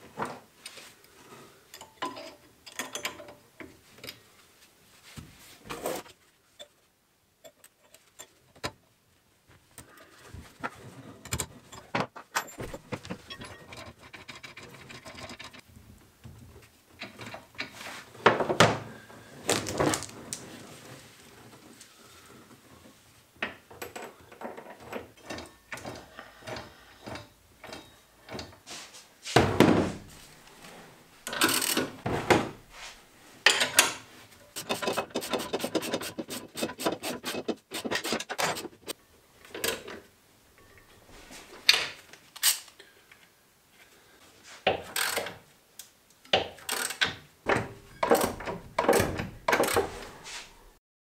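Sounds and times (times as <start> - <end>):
metal clinks and scrapes: 11.2 - 15.6, 34.6 - 39.0.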